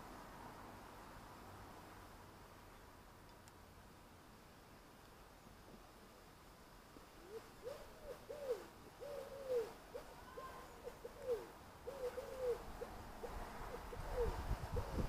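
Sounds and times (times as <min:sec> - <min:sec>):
pigeon cooing: 0:07.2 - 0:15.0.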